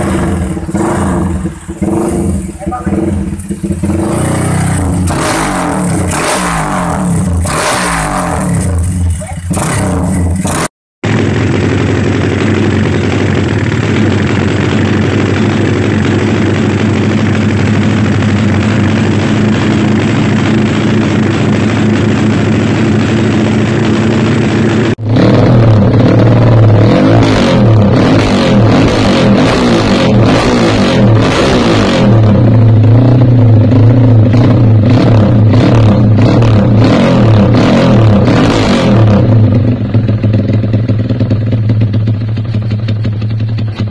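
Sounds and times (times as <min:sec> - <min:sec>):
motorcycle engine idling: 0:00.0 - 0:07.6, 0:08.4 - 0:26.8, 0:39.2 - 0:43.9
motorcycle engine revving: 0:00.0 - 0:43.9.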